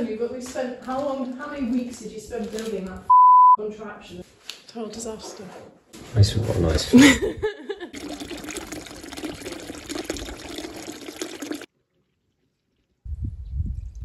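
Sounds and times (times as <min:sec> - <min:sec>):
water pouring into trough: 0:08.0 - 0:13.0
low rumble: 0:13.1 - 0:14.0.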